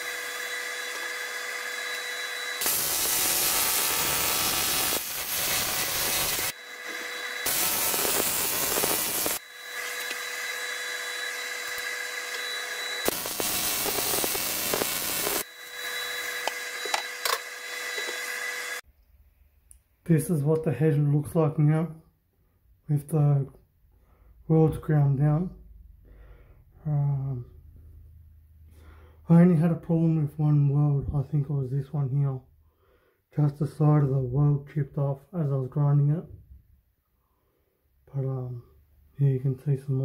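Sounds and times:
steady whine: 0.0 - 18.8
welding arc hiss and crackle: 1.9 - 10.3, 11.4 - 18.8.

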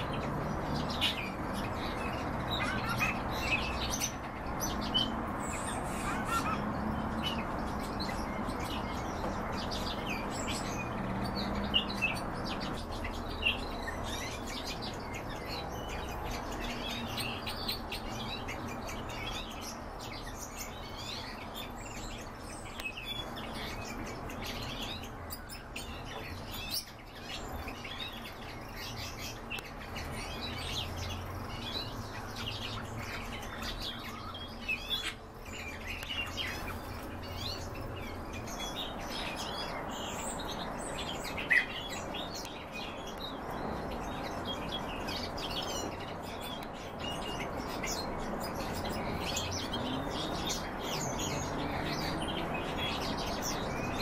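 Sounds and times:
cage birds chirping: 0.0 - 54.0.

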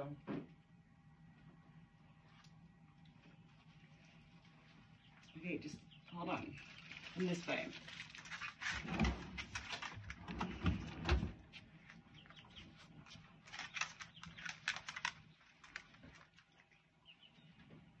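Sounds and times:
dog claws clicking on floor: 13.5 - 16.5.

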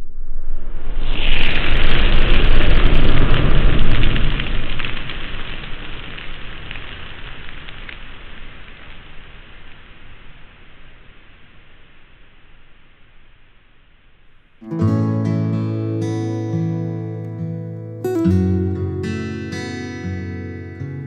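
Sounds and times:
cinematic noise swell with rumble: 0.0 - 6.3.

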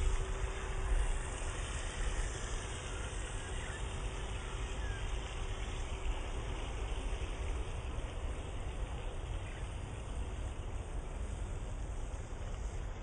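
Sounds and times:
small electric motor whine: 0.0 - 8.3
water noise: 0.0 - 13.0.

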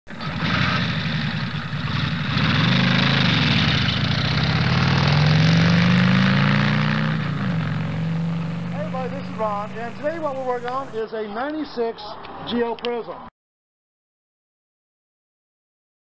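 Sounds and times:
second engine passing: 0.1 - 11.0
vehicle engine running: 0.1 - 11.0.

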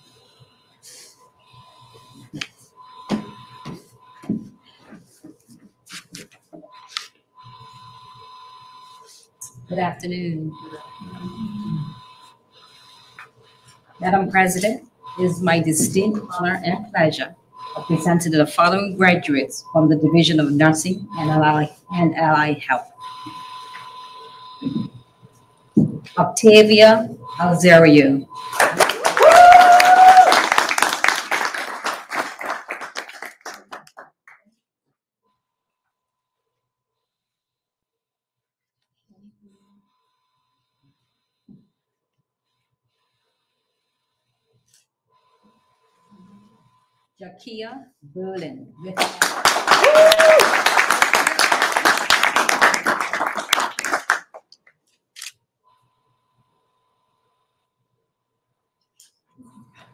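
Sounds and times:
audience clapping: 28.4 - 34.4, 49.0 - 54.6
small group applauding: 28.4 - 34.5, 48.9 - 54.6
person cheering: 28.6 - 30.8, 49.6 - 51.5.

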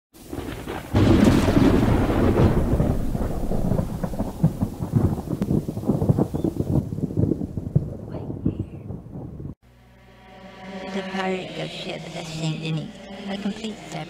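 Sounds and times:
rain pattering: 0.2 - 9.6
thunderclap rumbling: 0.2 - 9.6.

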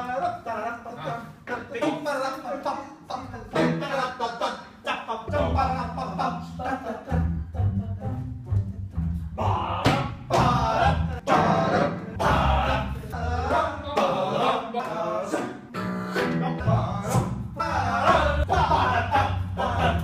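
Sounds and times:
men singing a cappella: 0.0 - 20.0
plucked double bass: 5.3 - 14.4, 15.8 - 20.0.

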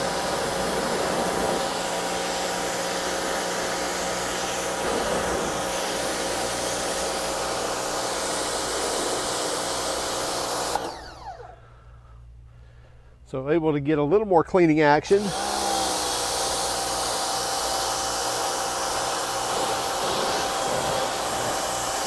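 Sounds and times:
pressure washer motor hum: 0.0 - 11.7, 15.0 - 22.0
water spray hissing on concrete: 18.5 - 22.0.

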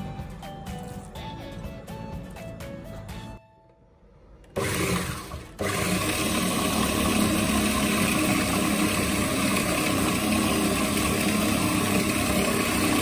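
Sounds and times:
food processor motor running: 4.5 - 13.0.

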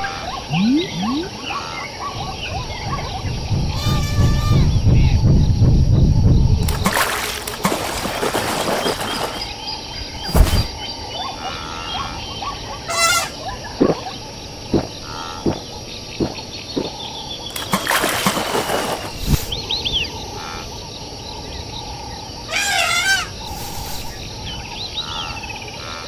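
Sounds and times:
warbling animal-like call: 0.0 - 4.8
birds chirping: 0.0 - 26.0.

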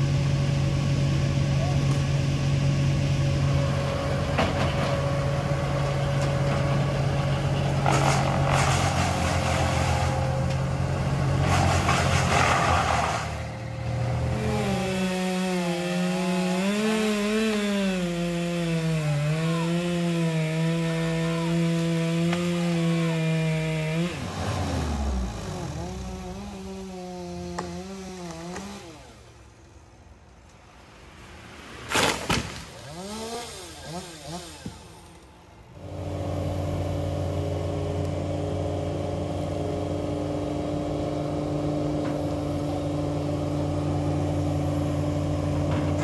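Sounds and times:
steady engine drone: 0.0 - 31.8, 32.6 - 46.0
chainsaw at high revs: 7.7 - 29.3, 32.7 - 46.0.

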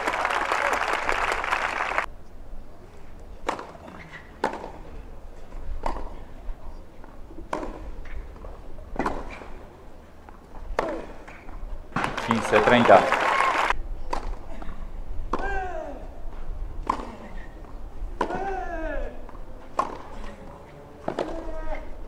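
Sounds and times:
spectator applause: 0.0 - 2.1, 12.1 - 13.8
racket striking tennis ball: 3.4 - 4.9, 5.8 - 6.2, 7.3 - 9.7, 10.6 - 12.5, 14.0 - 15.7, 16.8 - 22.0.

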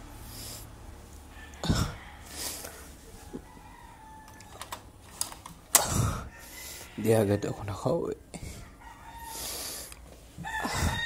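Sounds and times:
rooster crowing: 1.3 - 4.8, 6.0 - 7.9, 8.5 - 11.0.

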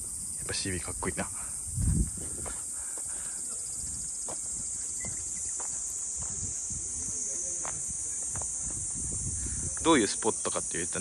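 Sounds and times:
insects chorus: 0.0 - 11.0
footsteps on gravel: 2.2 - 7.0, 7.6 - 9.1.

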